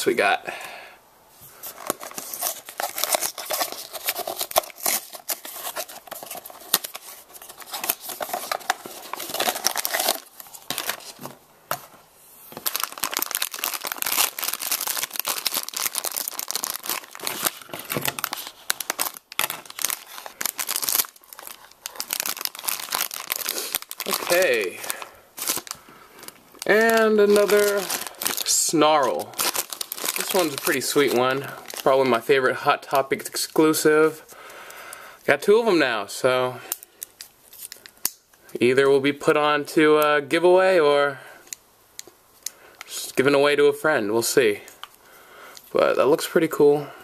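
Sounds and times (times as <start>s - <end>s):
foil bag crinkling and tearing: 1.6s - 11.2s, 12.6s - 32.2s.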